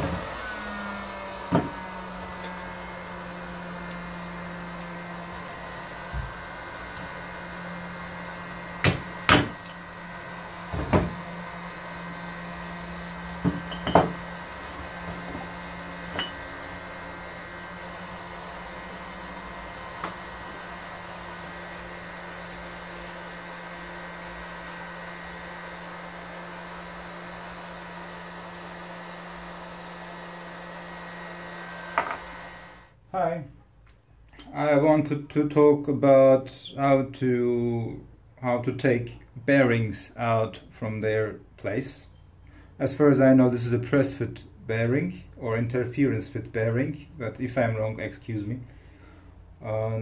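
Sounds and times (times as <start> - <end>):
hammer knocks on metal: 8.8 - 9.7.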